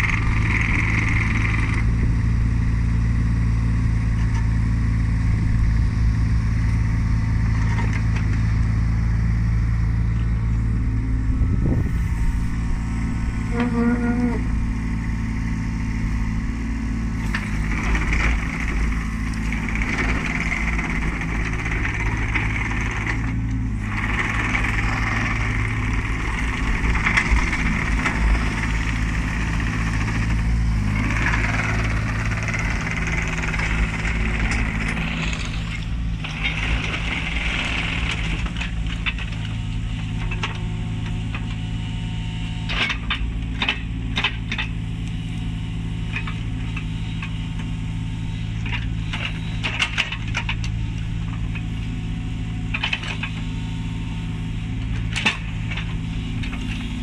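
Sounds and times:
diesel engine running: 0:00.0 - 0:57.0
high whine: 0:09.5 - 0:16.6.

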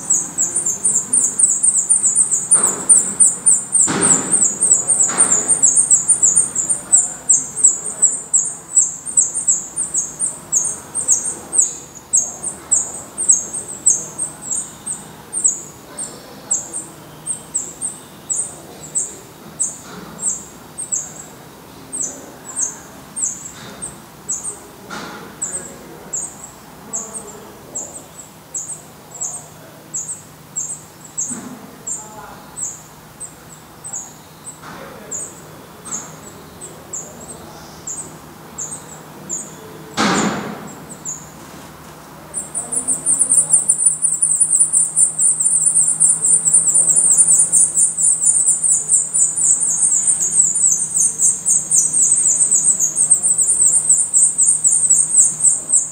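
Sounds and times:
nestlings begging chatter: 0:00.0 - 0:55.9
brief loud knock: 0:03.8 - 0:05.6, 0:40.0 - 0:40.9.

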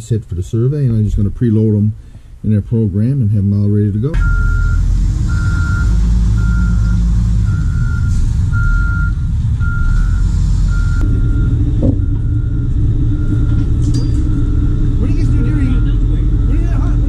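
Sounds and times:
wheel loader engine running: 0:04.1 - 0:17.0
back-up alarm beeping: 0:04.2 - 0:17.0.

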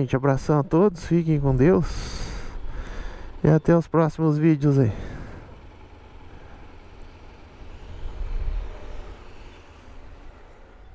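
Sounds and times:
road traffic rumble: 0:00.0 - 0:10.9
vehicle passing: 0:04.5 - 0:10.9.

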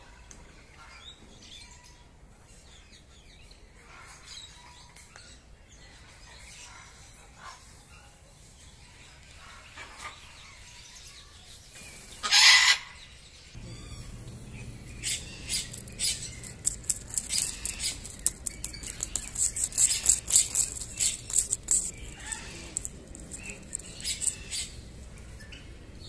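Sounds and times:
parrot harsh screech: 0:12.2 - 0:12.9
sharp crackles and ticks: 0:14.5 - 0:24.7.

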